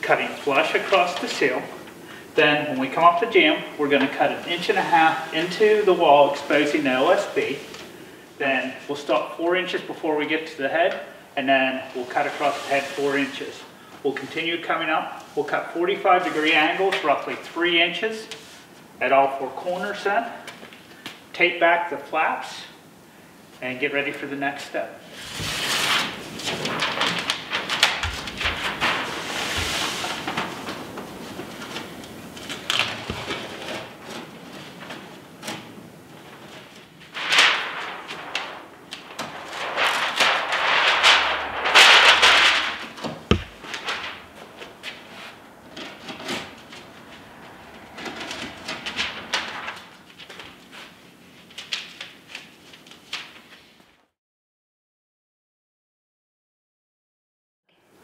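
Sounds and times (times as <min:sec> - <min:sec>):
housewrap rustling and crinkling: 0:25.2 - 0:35.2, 0:36.1 - 0:45.4.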